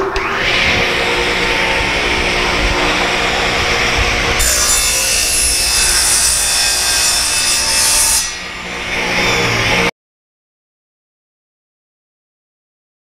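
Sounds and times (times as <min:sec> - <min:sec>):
table saw cutting plywood: 0:00.0 - 0:09.9.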